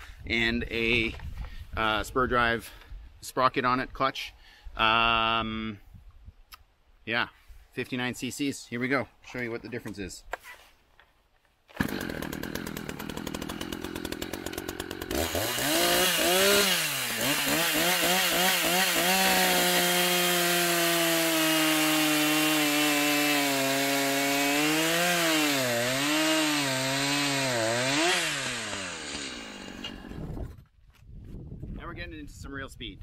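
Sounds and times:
chainsaw idling and revving: 11.7 - 30.3
chainsaw cutting through log: 11.7 - 30.5.

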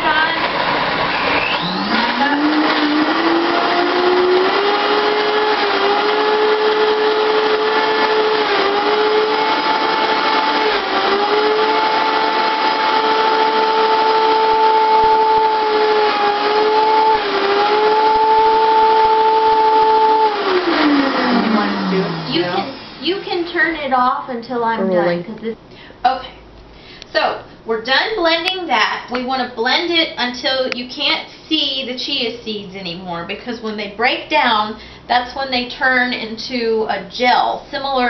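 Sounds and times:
blender motor whining: 0.2 - 23.1.

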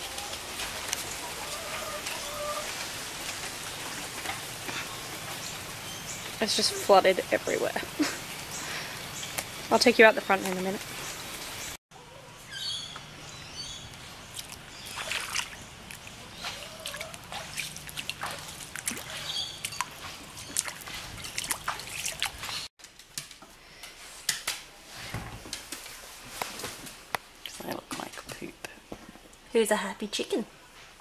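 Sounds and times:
water trickling and dripping: 0.0 - 11.8, 13.9 - 22.7
footsteps wading through water: 13.9 - 22.7.

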